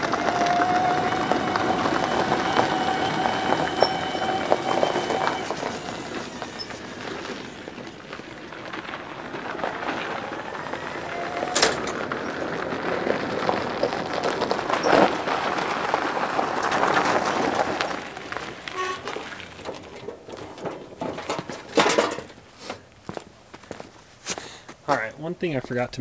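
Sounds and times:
electric motor whine: 0.0s - 12.2s
tyres crunching on gravel: 0.0s - 25.7s.

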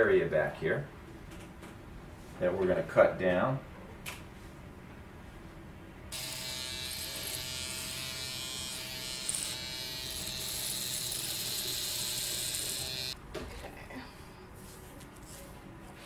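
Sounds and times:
electric hair clippers running: 6.1s - 13.2s.

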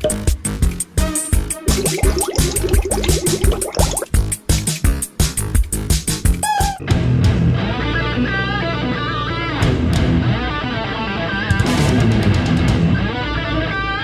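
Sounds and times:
choppy beat-driven music: 1.4s - 4.8s.

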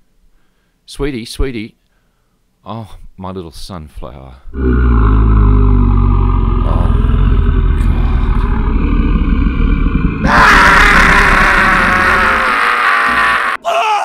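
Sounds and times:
deep rumbling growl: 4.6s - 13.6s
scream-like cry: 4.6s - 14.0s.

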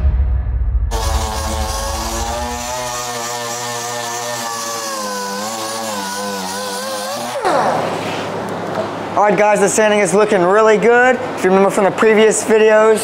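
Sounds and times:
pneumatic sander whining: 0.9s - 8.5s.

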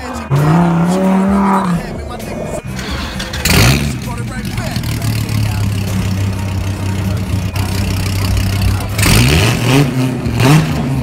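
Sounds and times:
car engine idling and revving: 0.0s - 11.0s.

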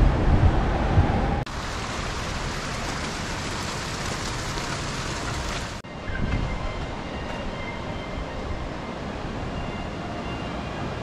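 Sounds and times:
river water rushing: 1.5s - 5.8s.

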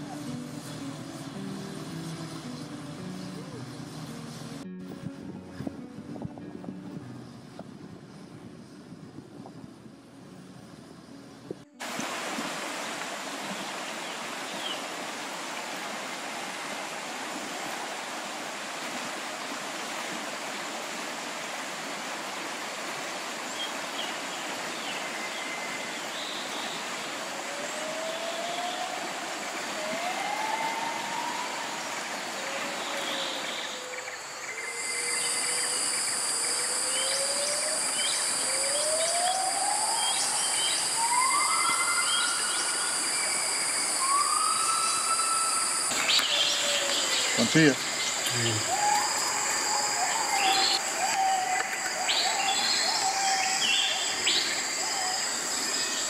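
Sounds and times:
river running over rocks: 0.0s - 4.7s, 11.7s - 34.5s
rising bird calls: 27.5s - 56.0s
bird chirps: 33.2s - 49.5s
high-pitched drone: 34.6s - 46.0s.

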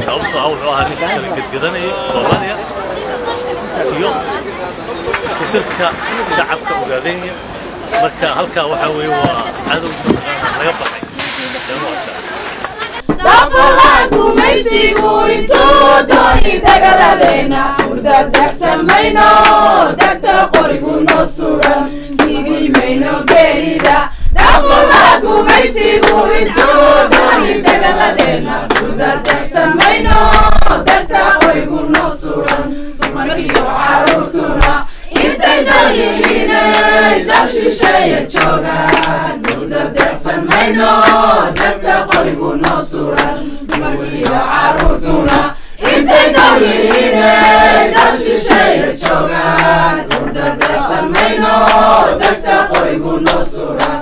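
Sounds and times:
hand clapping: 12.6s - 24.0s, 25.0s - 54.0s
group singing together: 12.7s - 54.0s.

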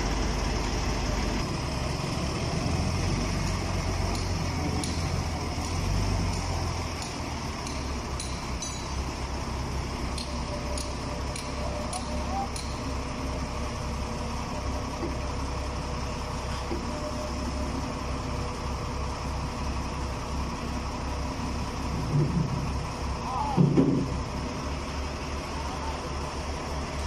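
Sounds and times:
forklift diesel engine drone: 0.0s - 27.0s
person shouting: 23.2s - 23.7s.

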